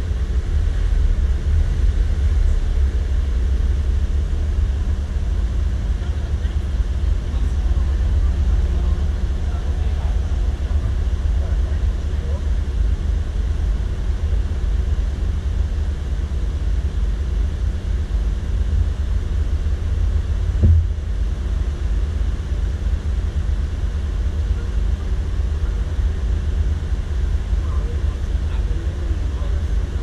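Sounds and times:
vehicle rumbling: 0:00.0 - 0:30.0
short thump: 0:20.6 - 0:21.0.

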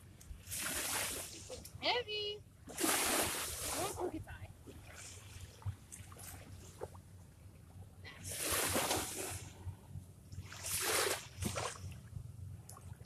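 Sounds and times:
small waves washing on sand: 0:00.4 - 0:06.9, 0:08.2 - 0:09.6, 0:10.4 - 0:12.0.

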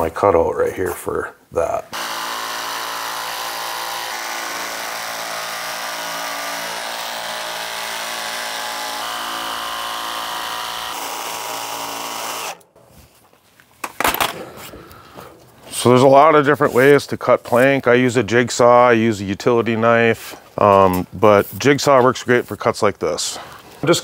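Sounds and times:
jigsaw cutting vinyl plank: 0:01.9 - 0:12.6.

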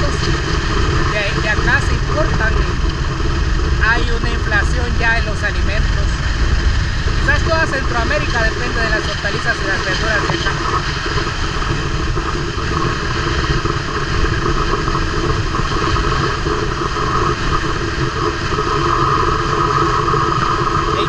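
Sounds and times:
road noise: 0:00.0 - 0:21.0
wind: 0:00.0 - 0:21.0.

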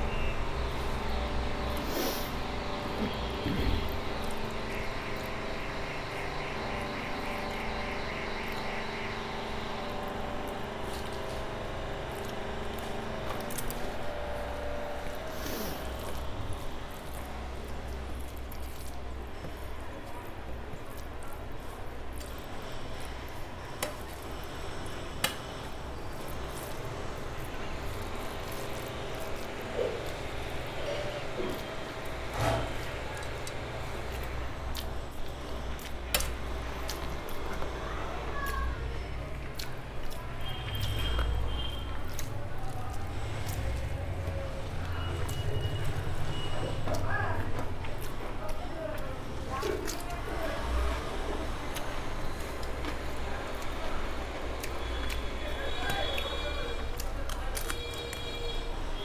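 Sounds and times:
fingers squishing rice: 0:00.0 - 0:46.6
steady engine drone: 0:00.0 - 0:57.6
faint eating clicks: 0:02.4 - 0:46.3, 0:51.4 - 0:58.2.

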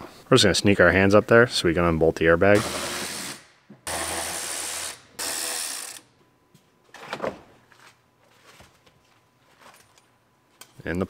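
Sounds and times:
power ratchet running: 0:02.6 - 0:06.0.

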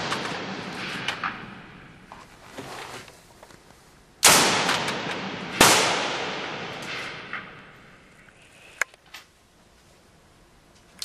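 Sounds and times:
rifle shots echoing: 0:00.0 - 0:02.1, 0:04.2 - 0:08.2.

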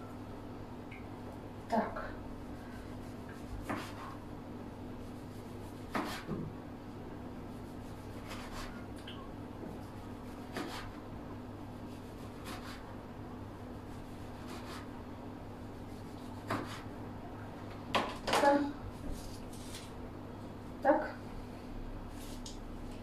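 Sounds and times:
low steady hum: 0:00.0 - 0:23.0
knife slicing tomato on board: 0:03.3 - 0:04.2, 0:05.6 - 0:06.5, 0:08.0 - 0:08.8, 0:09.7 - 0:11.0, 0:11.9 - 0:12.9, 0:14.4 - 0:14.9, 0:16.1 - 0:16.9.

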